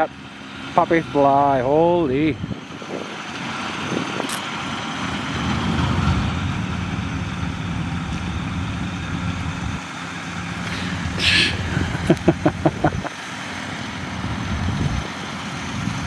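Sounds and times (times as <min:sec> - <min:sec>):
snow blower engine drone: 0:00.0 - 0:16.0.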